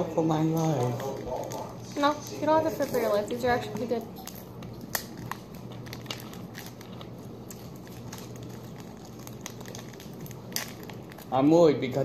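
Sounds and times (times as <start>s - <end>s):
low steady hum: 0.0s - 12.0s
snack wrapper crackling: 0.3s - 12.0s.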